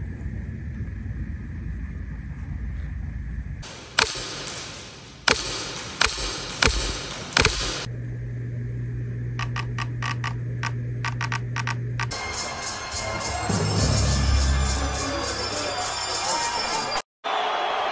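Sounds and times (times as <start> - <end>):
steady low hum: 0.0 - 15.8
airsoft rifle shots: 3.6 - 7.9.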